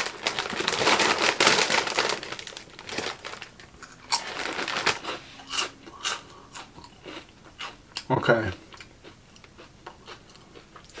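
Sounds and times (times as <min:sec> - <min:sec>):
plastic snack bag rustling: 0:00.0 - 0:05.2
chips crunching: 0:00.0 - 0:07.3.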